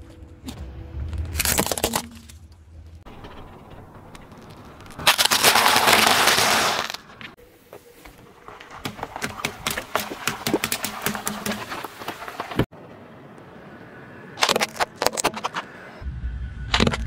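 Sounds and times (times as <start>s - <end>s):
tyre crushing ice cream cones: 4.8s - 7.0s.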